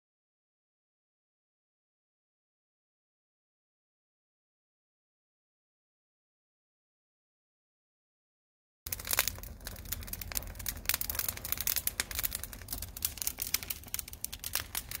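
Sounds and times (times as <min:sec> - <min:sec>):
dense crackling and crinkling: 0:08.9 - 0:15.0.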